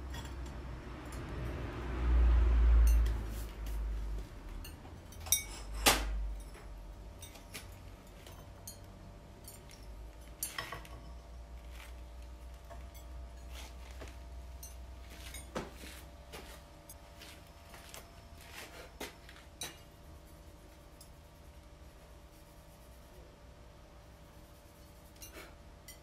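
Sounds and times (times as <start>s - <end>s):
ceramic pieces clinking on kiln shelves: 0.0s - 1.3s, 4.6s - 15.8s.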